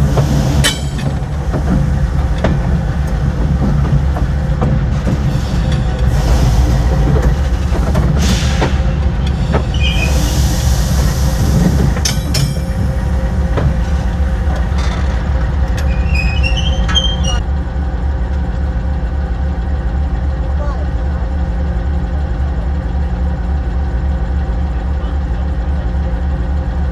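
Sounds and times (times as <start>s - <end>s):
wheel clicks over rail joints: 0.0s - 10.0s, 11.5s - 17.4s
locomotive engine rumble: 0.0s - 26.9s
wheel squeals: 9.2s - 10.5s, 15.8s - 17.4s.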